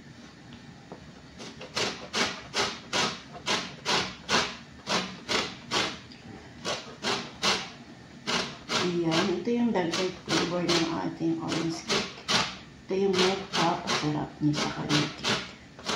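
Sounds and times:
orange peel scraping on grater: 1.4 - 6.0, 6.6 - 12.6, 13.2 - 15.9.

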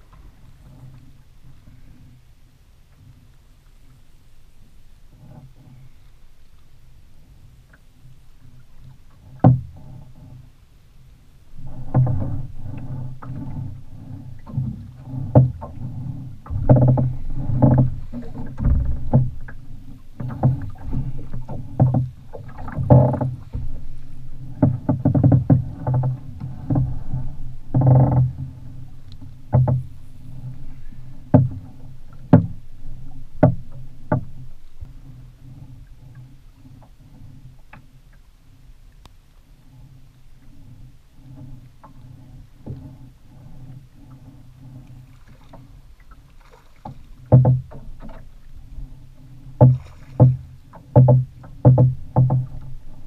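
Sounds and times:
water slapping against boat hull: 8.5 - 10.5, 11.6 - 38.2, 39.8 - 53.0
steady low hum: 9.8 - 37.6.

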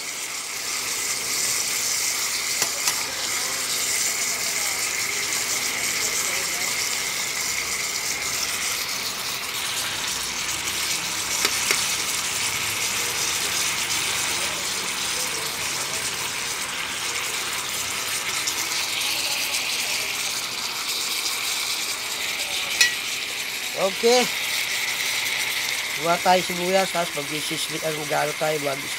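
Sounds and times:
meat sizzling in a pan: 0.0 - 28.9
spoon knocking on pan: 2.6 - 3.1, 11.4 - 11.9, 22.8 - 23.0
metal spoon stirring: 2.6 - 3.8, 7.6 - 12.4, 21.1 - 24.2.

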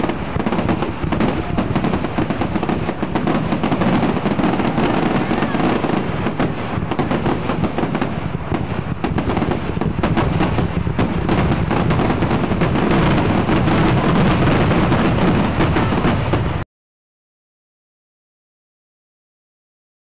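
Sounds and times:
fireworks bursts and bangs: 0.0 - 16.6
fireworks crackling: 0.0 - 16.6.

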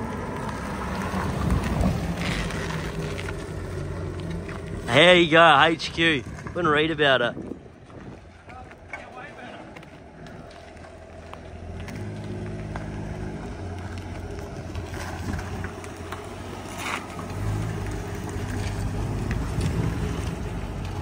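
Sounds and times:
car engine driving past: 9.4 - 21.0.

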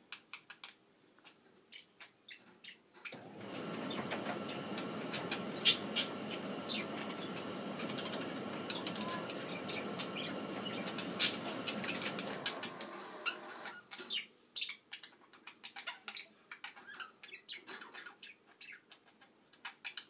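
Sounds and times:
faint hum: 3.2 - 13.8.

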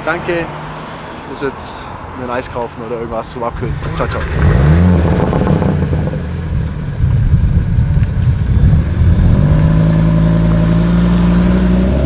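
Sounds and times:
car engine revving: 3.6 - 12.0.

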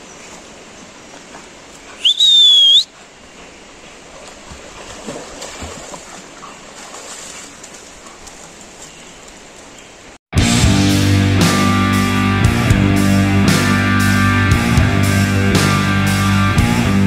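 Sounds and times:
creek water flowing: 0.0 - 10.2
loud whistle: 2.0 - 2.9
dogs splashing in water: 3.8 - 9.7.

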